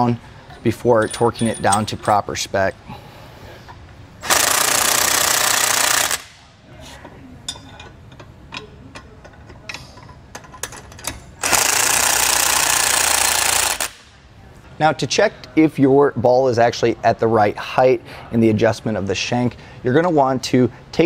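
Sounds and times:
metallic tool clinks: 1.0 - 2.1
impact wrench hammering: 4.2 - 6.4, 10.4 - 14.1.

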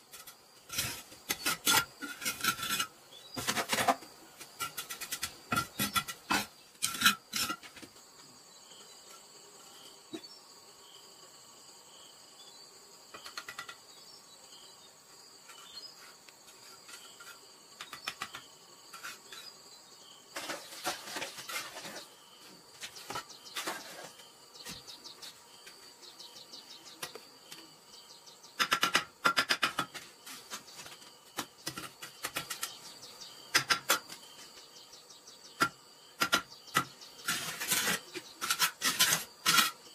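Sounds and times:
trowel scraping mortar: 0.0 - 7.8, 16.5 - 19.6, 20.4 - 22.2, 22.8 - 25.4, 36.2 - 39.9
trowel tapping bricks: 0.2 - 7.7, 17.0 - 19.1, 28.6 - 30.6, 33.5 - 34.1, 35.6 - 39.9.

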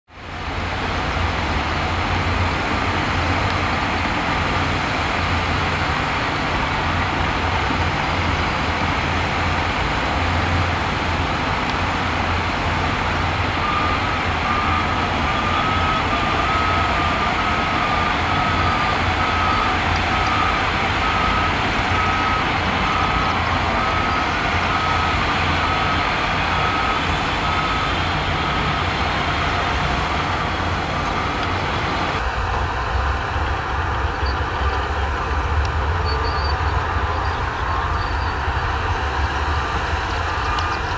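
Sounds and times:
heavy diesel engines running: 0.1 - 40.9
reversing alarm beeping: 12.7 - 32.2, 36.0 - 38.7, 39.6 - 40.9.

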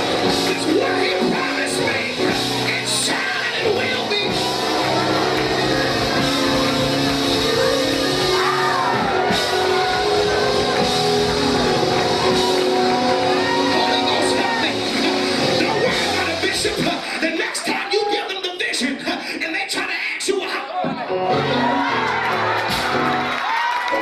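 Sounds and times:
man singing and shouting: 0.0 - 5.3, 13.2 - 21.4
church band playing: 0.0 - 17.9, 21.1 - 24.0.

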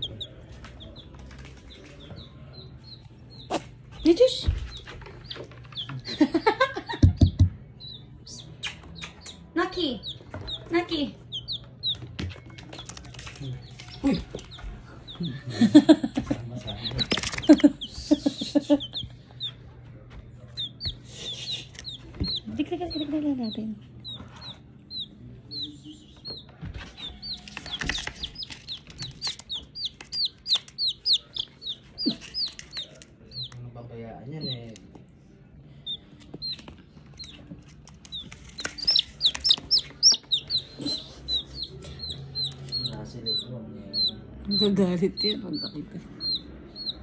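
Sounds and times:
baby chick peeping: 0.0 - 47.0.

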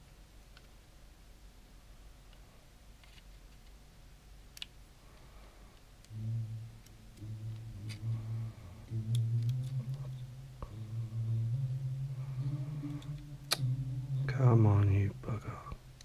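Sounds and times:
man humming low notes: 6.1 - 16.0.

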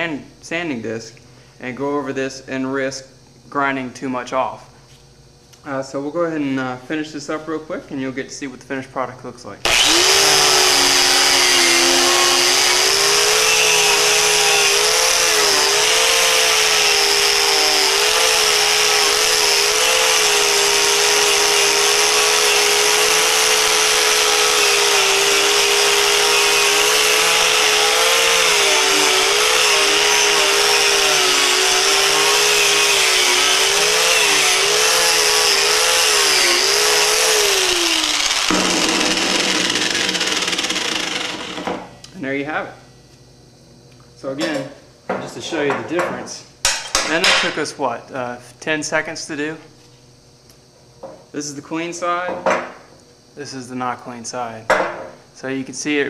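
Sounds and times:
angle grinder motor whine: 9.6 - 42.0.

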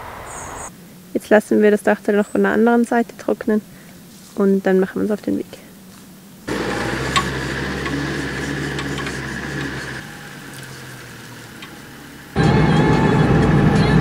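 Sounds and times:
diesel engine running: 6.5 - 14.0
loud driving sound: 6.5 - 14.0.

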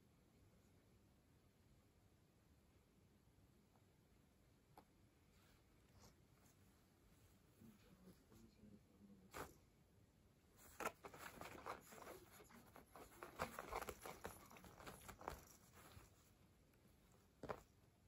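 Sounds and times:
fabric rustling and scratching: 10.6 - 17.8.

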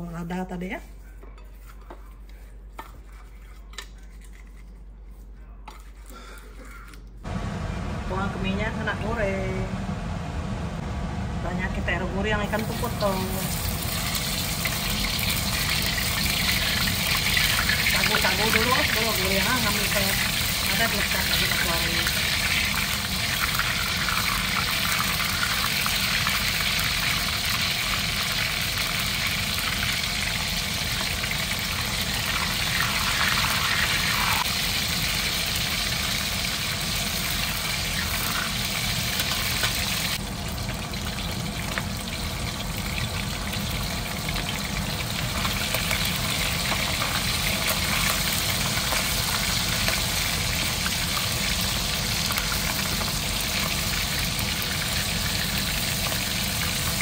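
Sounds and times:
low steady rumble: 7.2 - 24.0
fish sizzling in hot oil: 12.5 - 57.0.

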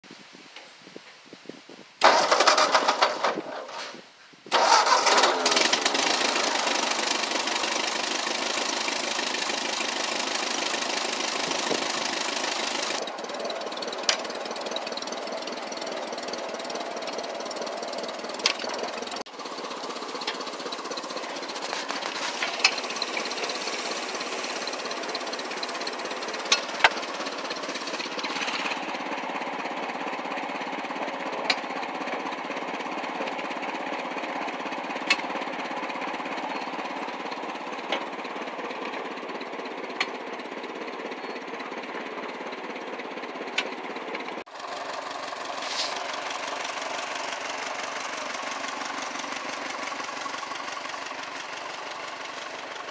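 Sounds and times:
tractor engine running: 2.0 - 52.9.

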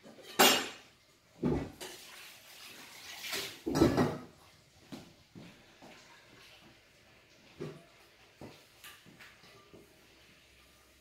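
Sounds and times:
kitchen clatters and rustles: 0.0 - 11.0.

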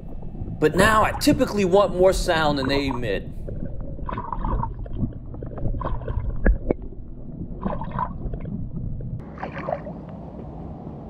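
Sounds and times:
underwater splashing gurgles: 0.0 - 10.1.

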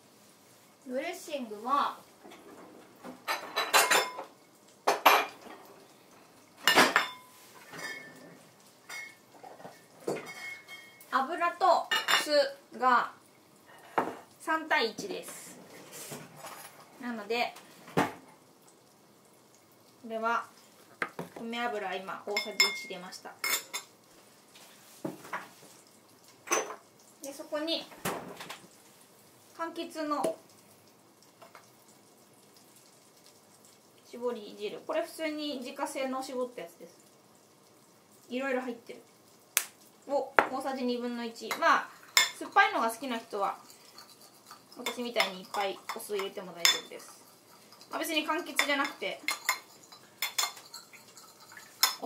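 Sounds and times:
dishes and utensils clattering: 2.3 - 5.7, 6.6 - 11.1, 15.7 - 17.0, 22.3 - 23.9, 26.4 - 26.9, 41.5 - 42.8, 43.6 - 52.0.

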